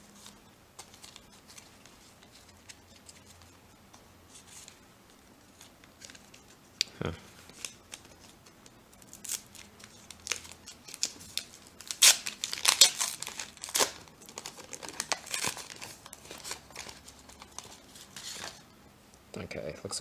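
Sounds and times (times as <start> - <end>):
foil wrapper tearing and crinkling: 8.9 - 18.6.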